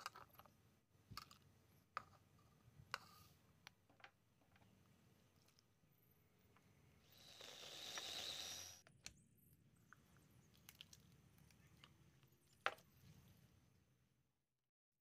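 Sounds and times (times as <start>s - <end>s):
food processor running: 7.2s - 8.8s.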